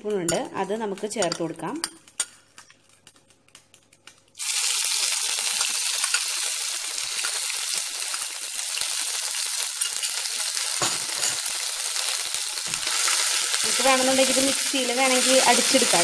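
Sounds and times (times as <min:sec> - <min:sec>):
oil sizzling in a pan: 0:04.4 - 0:16.0.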